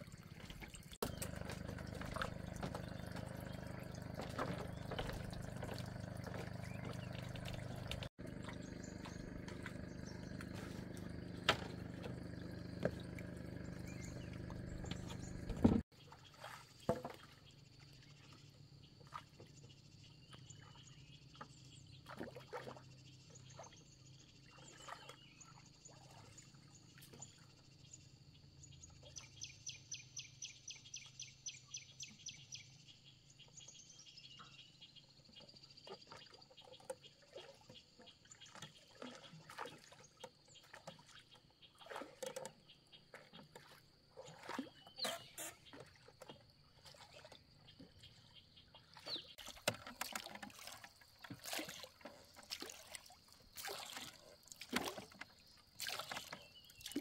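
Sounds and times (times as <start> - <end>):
running water: 0.0 - 17.2, 43.1 - 57.0
birds chirping: 0.2 - 15.8.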